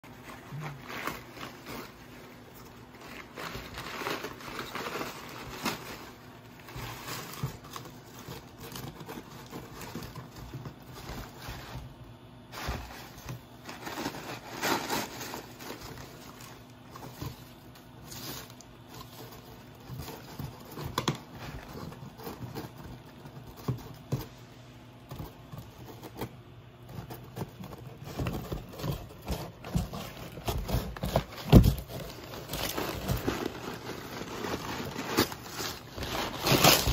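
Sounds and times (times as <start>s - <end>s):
cardboard ripping and crinkling: 0.1s - 36.9s
puppy chewing cardboard: 18.6s - 36.9s.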